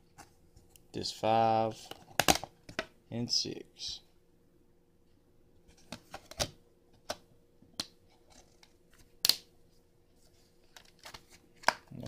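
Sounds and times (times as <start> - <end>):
plastic disc case clicks: 1.9 - 2.9
plastic case snapping shut: 2.2 - 2.9.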